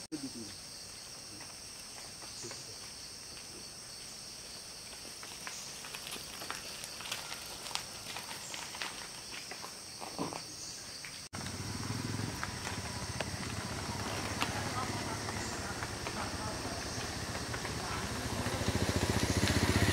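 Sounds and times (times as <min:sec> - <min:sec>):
forest insects droning: 0:00.0 - 0:19.9
cracks and rustles in undergrowth: 0:04.7 - 0:11.6, 0:12.3 - 0:19.7.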